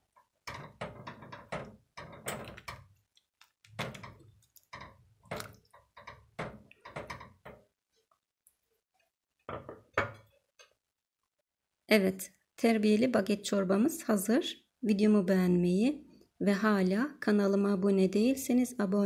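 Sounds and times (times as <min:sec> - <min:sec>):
spatula stirring soup pot: 0:00.0 - 0:10.9.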